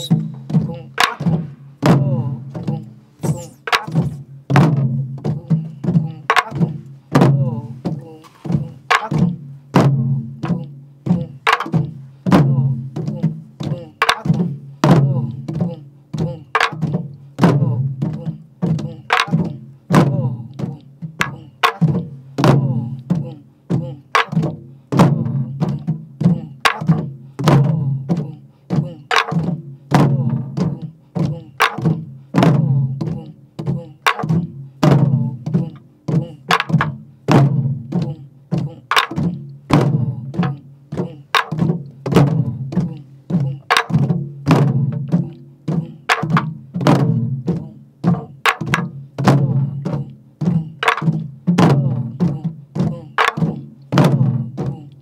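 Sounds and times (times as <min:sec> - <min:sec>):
barrel drum strokes: 0:00.0 - 0:06.0.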